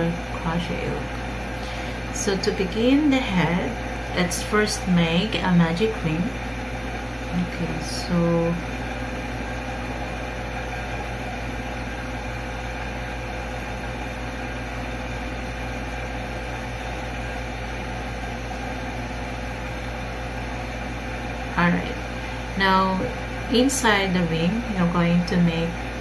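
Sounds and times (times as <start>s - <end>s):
steady background hum and hiss: 0.0s - 26.0s.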